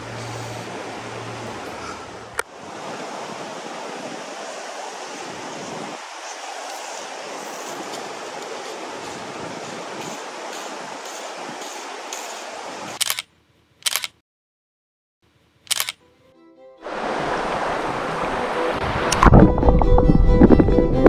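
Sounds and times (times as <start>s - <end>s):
river flowing over gravel: 0.0s - 13.0s, 16.8s - 19.2s
sharp click: 13.0s - 14.2s, 15.7s - 16.0s.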